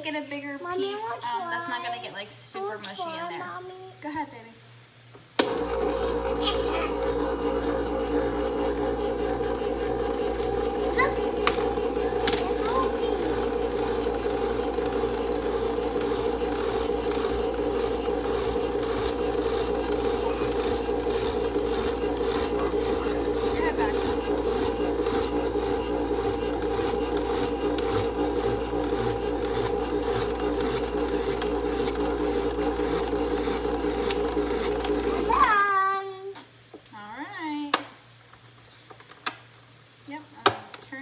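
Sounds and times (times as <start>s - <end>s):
spiralizer motor running: 5.4s - 35.4s
blade rasping vegetable: 9.6s - 35.3s.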